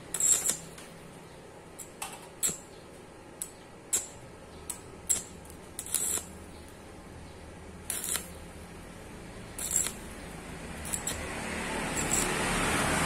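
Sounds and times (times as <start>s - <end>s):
stick welder arc bursts: 0.0s - 0.8s, 1.8s - 2.7s, 3.4s - 6.5s, 7.8s - 8.5s, 9.5s - 13.0s.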